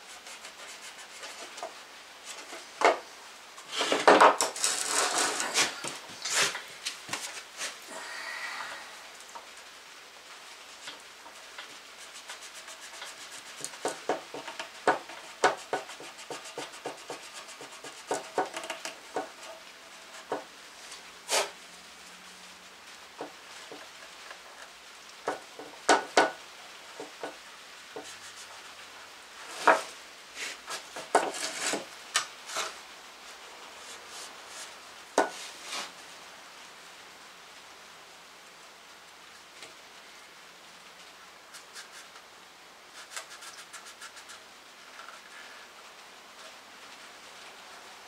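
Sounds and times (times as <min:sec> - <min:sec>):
tool scrubbing and scraping metal: 0:03.6 - 0:06.6.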